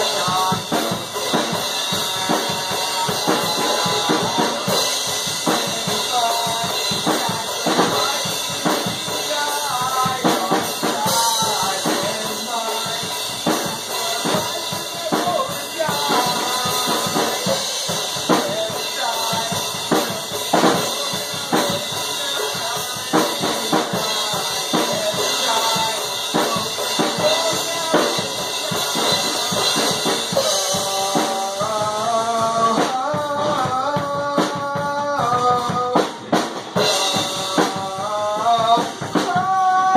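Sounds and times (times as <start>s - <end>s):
drum kit played hard: 0.0s - 39.9s
man singing into microphone: 0.0s - 39.9s.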